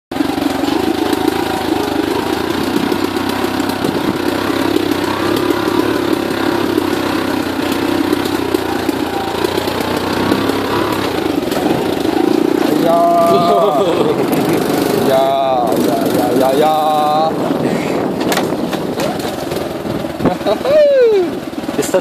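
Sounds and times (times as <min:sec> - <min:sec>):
motorbike engine running: 0:00.1 - 0:22.0
knocks and rattles from bumps: 0:00.2 - 0:20.7.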